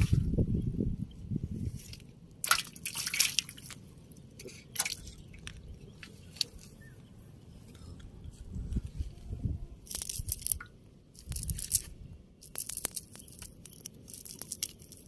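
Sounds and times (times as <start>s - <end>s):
fish splashing in a steel bowl: 2.4s - 3.8s
water dripping: 2.4s - 3.8s.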